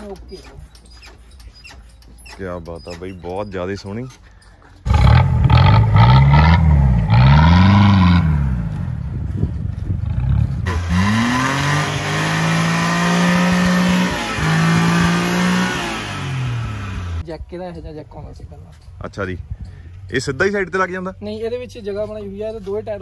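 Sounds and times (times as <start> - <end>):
car engines revving: 4.9 - 17.2.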